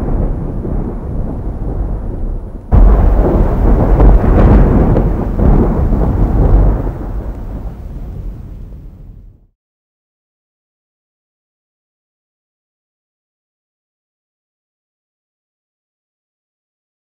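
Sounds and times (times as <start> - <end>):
thunder clap and rumble: 0.0 - 9.5.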